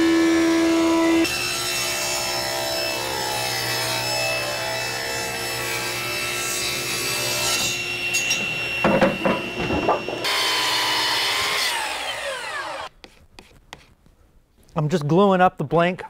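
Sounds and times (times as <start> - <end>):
miter saw cutting: 0.0 - 12.9
table saw ripping a board: 0.0 - 12.9
knocks: 8.3 - 10.5.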